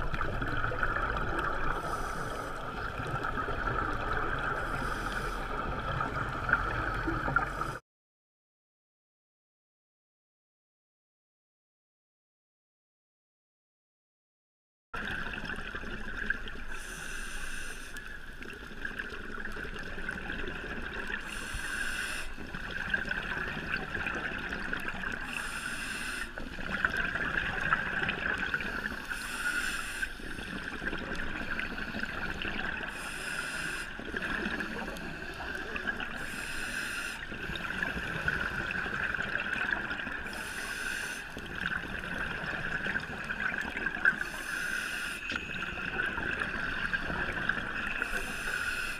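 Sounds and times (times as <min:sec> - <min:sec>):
exhaled bubbles rushing: 0:00.0 - 0:07.8, 0:26.4 - 0:28.9, 0:37.3 - 0:40.3, 0:41.4 - 0:44.2
steady underwater hum: 0:00.0 - 0:07.8, 0:15.0 - 0:48.9
scuba regulator breathing underwater: 0:01.4 - 0:07.8, 0:16.7 - 0:18.2, 0:20.7 - 0:23.1, 0:25.2 - 0:27.1, 0:28.2 - 0:47.4, 0:48.0 - 0:48.9.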